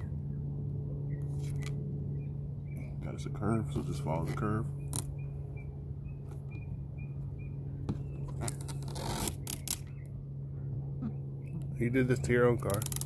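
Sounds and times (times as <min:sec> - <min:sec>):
rubber strip scraping on glass: 0:08.3 - 0:09.9, 0:12.6 - 0:13.0.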